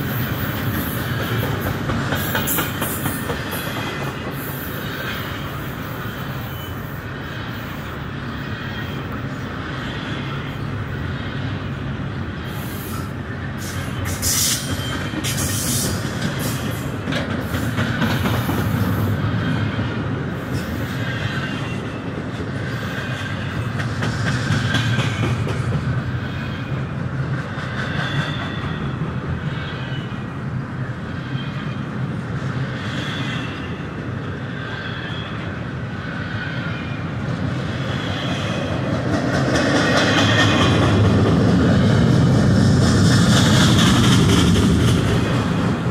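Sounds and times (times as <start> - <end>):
freight train wheels rumbling: 0.0 - 45.9
wheel squeals: 2.2 - 7.6, 12.9 - 16.5.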